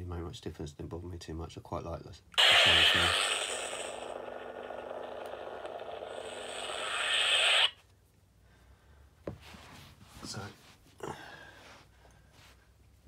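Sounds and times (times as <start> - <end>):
lightsaber hissing hum: 2.4 - 7.8.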